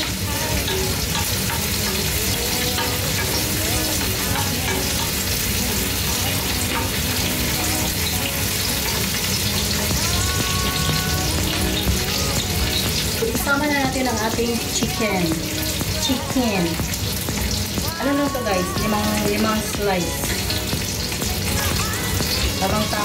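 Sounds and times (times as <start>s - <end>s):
spatula stirring in wok: 0.0s - 13.2s
onions sizzling in hot oil: 0.0s - 23.0s.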